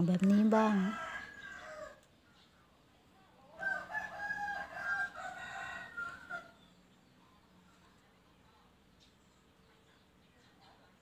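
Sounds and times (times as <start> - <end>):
rooster crowing: 0.6 - 2.0, 3.5 - 6.6.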